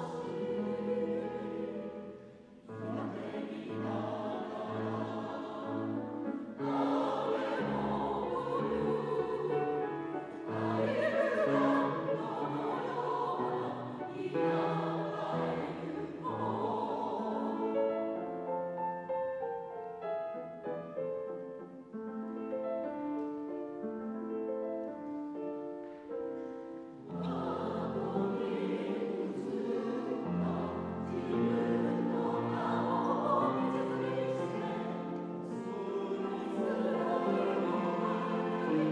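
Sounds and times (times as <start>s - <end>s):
mixed choir singing: 0.0s - 18.7s, 26.9s - 38.9s
grand piano accompaniment: 0.0s - 38.9s.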